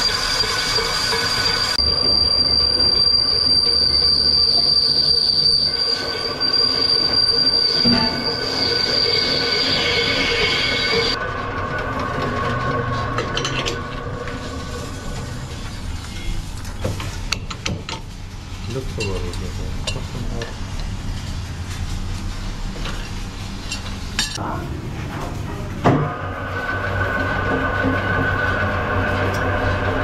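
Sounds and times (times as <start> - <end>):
lathe tool squealing on metal: 0.0 - 11.2
lathe machine running: 0.0 - 16.8, 24.7 - 30.0.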